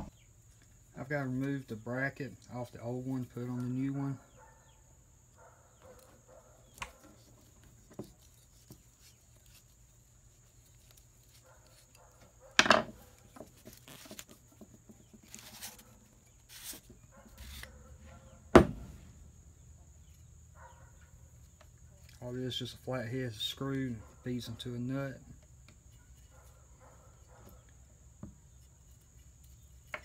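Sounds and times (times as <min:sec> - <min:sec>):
parts knocking on wooden bench: 0:12.6 - 0:13.6, 0:18.5 - 0:19.0.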